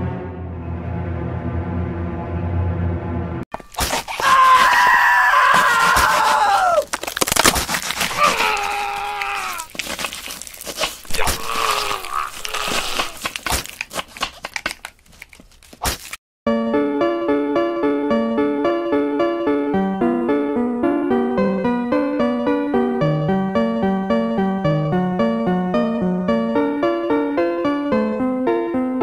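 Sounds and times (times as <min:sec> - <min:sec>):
eerie music: 0:00.0 - 0:03.4
sharp cracking and crunching hits: 0:03.6 - 0:16.2
long high screams: 0:04.2 - 0:06.9, 0:08.2 - 0:09.7, 0:11.1 - 0:13.2.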